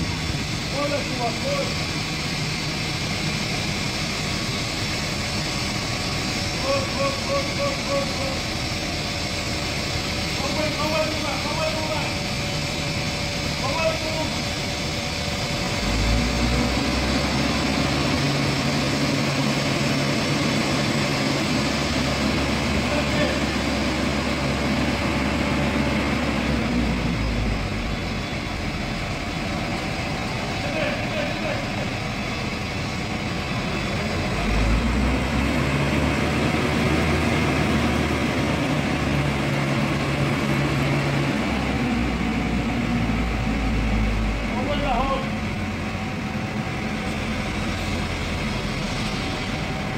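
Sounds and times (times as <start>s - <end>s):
crane engine droning: 0.0s - 49.9s
steady hum: 0.0s - 49.9s.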